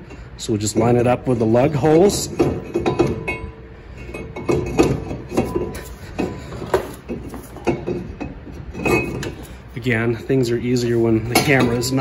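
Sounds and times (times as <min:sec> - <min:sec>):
metallic clinks and scrapes: 0:02.3 - 0:09.7.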